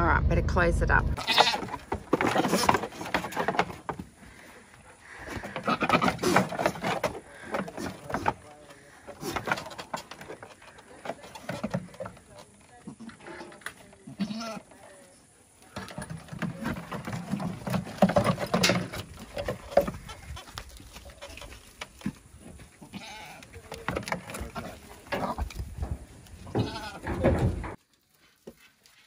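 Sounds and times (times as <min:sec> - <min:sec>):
goats bleating: 0:01.2 - 0:02.6, 0:05.0 - 0:06.6, 0:14.1 - 0:14.8, 0:22.8 - 0:23.6, 0:26.4 - 0:27.3
knocking and scuffling: 0:01.2 - 0:14.0, 0:15.5 - 0:28.7.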